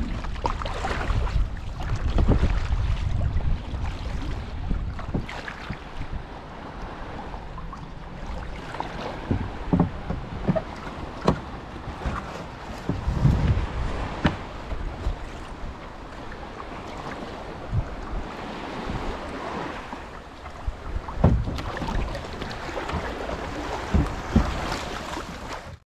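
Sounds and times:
water splashing around kayak: 0:00.0 - 0:25.8
wind on microphone: 0:00.0 - 0:25.8
sharp knocks: 0:09.2 - 0:12.2, 0:21.2 - 0:22.0, 0:23.8 - 0:24.7.

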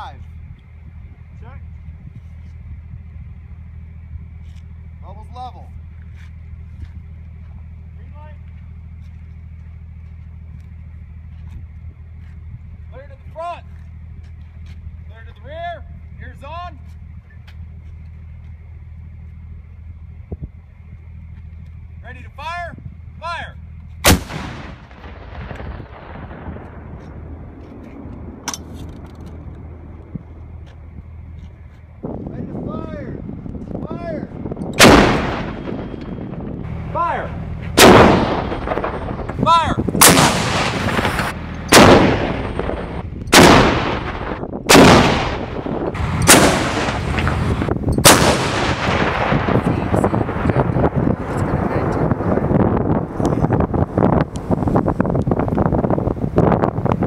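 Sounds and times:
rolling echo of cannon shot: 0:24.0 - 0:30.4, 0:34.8 - 0:53.2
artillery blasts: 0:24.0 - 0:30.6, 0:34.7 - 0:54.2.

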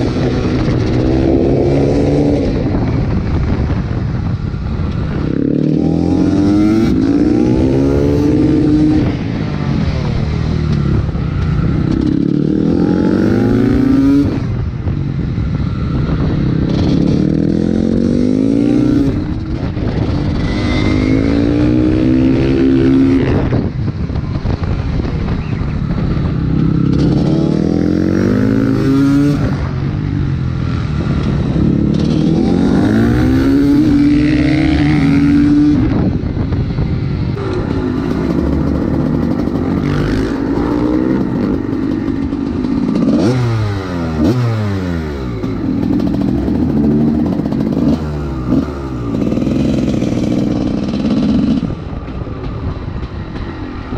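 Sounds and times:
two-stroke engine revving hard: 0:31.2 - 0:36.1, 0:37.4 - 0:51.8.

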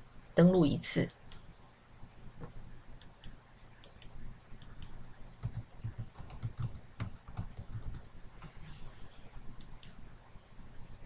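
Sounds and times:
computer keyboard typing: 0:03.0 - 0:08.1.

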